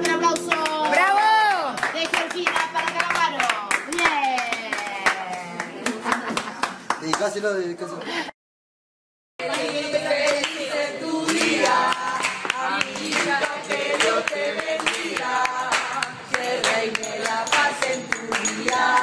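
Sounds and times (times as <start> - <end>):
hands clapping in time: 0.0 - 7.4, 11.3 - 19.0
group singing: 9.4 - 19.0.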